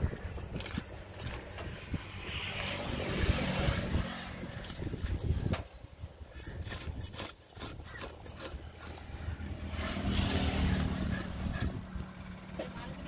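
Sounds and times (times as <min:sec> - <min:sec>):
knife scraping fish: 0:06.3 - 0:11.8.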